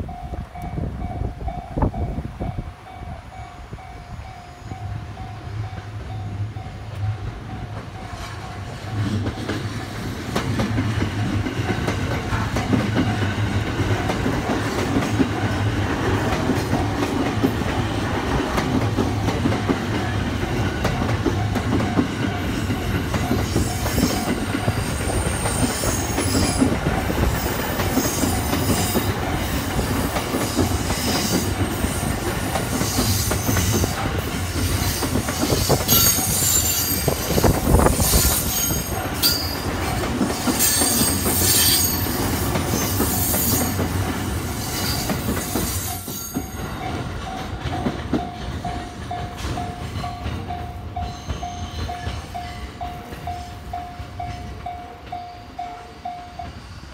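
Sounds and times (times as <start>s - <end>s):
train wheels rumbling on rails: 0.0s - 56.9s
high-pitched wheel squeals: 34.8s - 39.6s, 40.6s - 43.8s.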